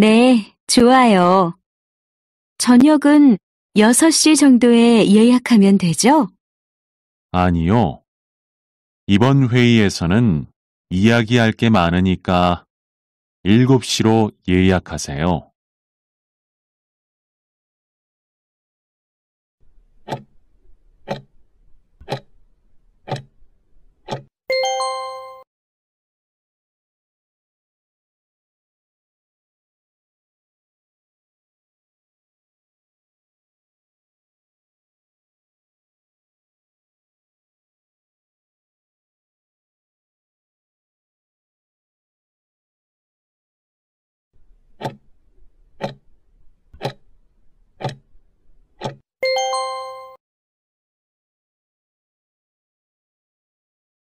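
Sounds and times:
clock ticking: 0:20.1 - 0:20.3, 0:21.1 - 0:21.3, 0:22.0 - 0:22.3, 0:23.1 - 0:23.3, 0:24.1 - 0:24.3, 0:44.8 - 0:45.0, 0:45.8 - 0:46.0, 0:46.8 - 0:47.0, 0:47.8 - 0:48.0, 0:48.8 - 0:49.0
ringing chime: 0:24.5 - 0:25.4, 0:49.2 - 0:50.2.

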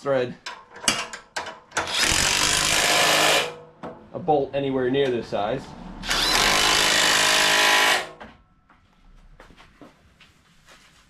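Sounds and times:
faint tool-handling clicks: 0:00.4 - 0:01.9
impact driver running: 0:01.8 - 0:03.6, 0:06.1 - 0:08.2.

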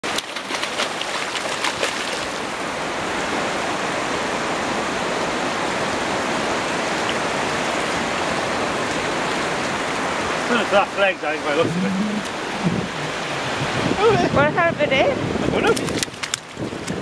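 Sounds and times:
fish splashing in shallows: 0:00.0 - 0:02.6
sea water washing over beach: 0:00.0 - 0:17.0.

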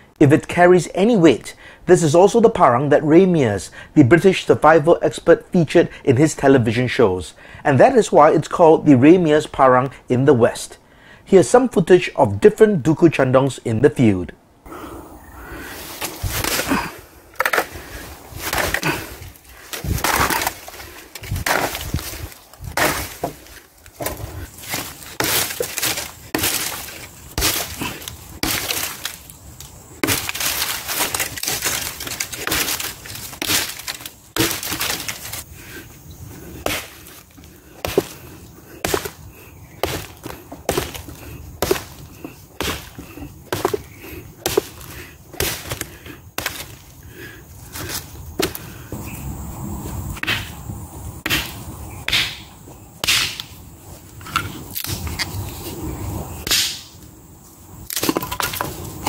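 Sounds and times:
machete chopping wood: 0:18.4 - 0:19.0, 0:19.7 - 0:29.2, 0:30.0 - 0:35.4, 0:36.6 - 0:37.2, 0:37.8 - 0:38.2, 0:38.8 - 0:39.2, 0:39.8 - 0:46.8, 0:48.4 - 0:48.6, 0:50.2 - 0:50.6, 0:51.2 - 0:53.5, 0:56.4 - 0:56.9, 0:57.9 - 0:58.7.

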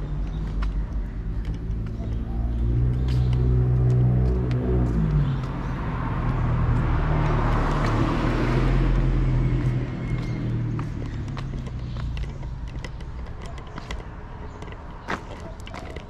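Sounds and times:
low engine hum: 0:00.0 - 0:16.0
car driving past: 0:02.5 - 0:12.1.

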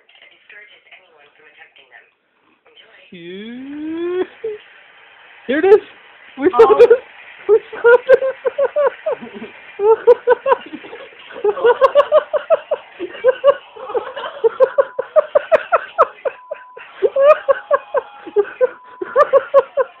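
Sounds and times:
person giggling: 0:03.2 - 0:04.6, 0:06.4 - 0:20.0.

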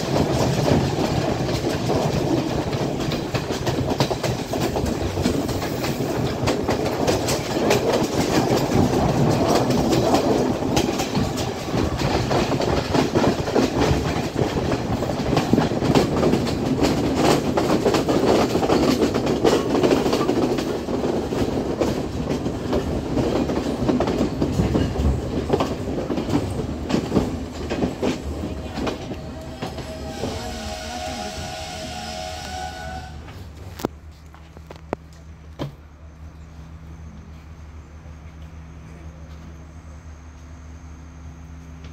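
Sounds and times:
wheel clatter over rail joints: 0:00.0 - 0:30.4
train rolling on track: 0:00.0 - 0:41.9.

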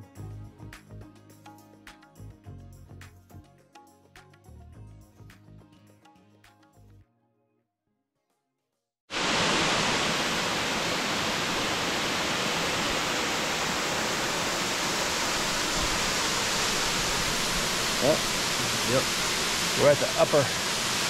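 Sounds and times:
waterfall rushing: 0:09.1 - 0:21.0.

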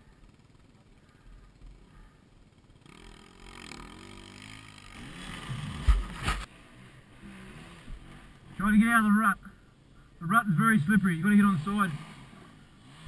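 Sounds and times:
dirt bike engine revving: 0:00.0 - 0:09.1, 0:10.2 - 0:13.0.

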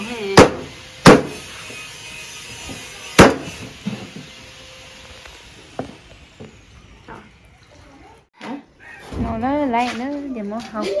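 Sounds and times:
cleaver chopping on wooden board: 0:00.4 - 0:01.4, 0:03.2 - 0:03.5.

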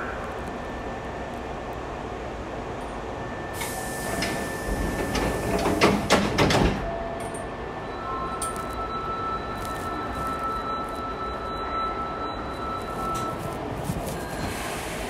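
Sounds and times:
rushing hiss of train doors: 0:03.5 - 0:06.4, 0:14.2 - 0:15.0
doors shutting with knocks: 0:05.0 - 0:06.9.

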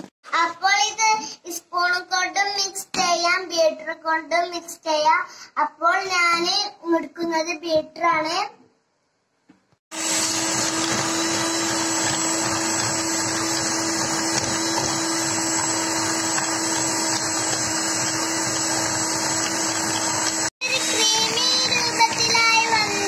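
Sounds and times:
electric hand mixer whirring: 0:09.9 - 0:23.0.

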